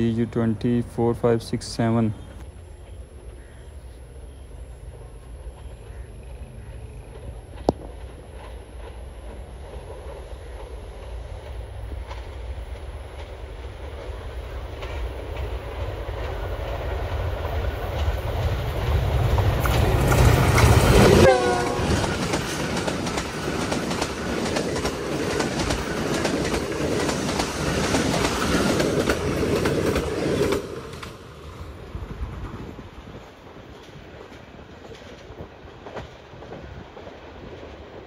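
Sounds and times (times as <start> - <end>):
diesel locomotive rumble: 0.0 - 38.0
train wheels clattering: 6.8 - 31.6, 32.2 - 38.0
train horn blast: 21.0 - 22.2.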